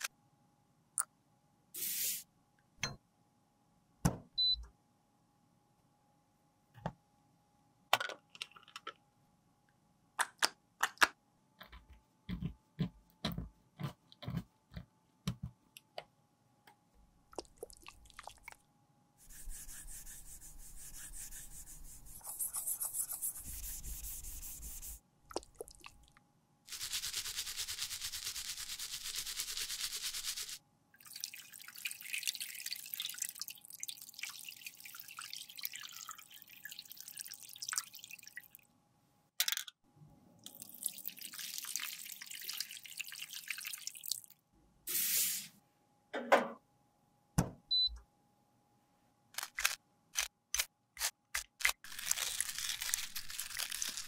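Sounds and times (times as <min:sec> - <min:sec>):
brush scrubbing in soapy water: 0:19.2 - 0:25.7.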